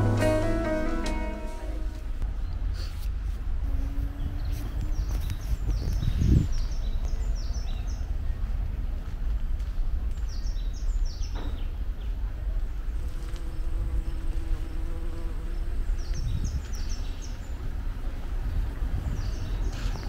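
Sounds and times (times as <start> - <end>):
low buzzing hum: 0.0 - 2.4, 12.7 - 16.9
songbird singing: 3.7 - 9.0, 10.0 - 20.0.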